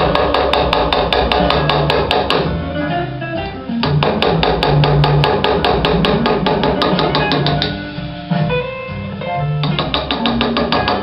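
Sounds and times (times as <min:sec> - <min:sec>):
hammer tapping chisel: 0:00.0 - 0:02.5, 0:03.8 - 0:07.8, 0:09.6 - 0:11.0
guitar music: 0:00.0 - 0:11.0.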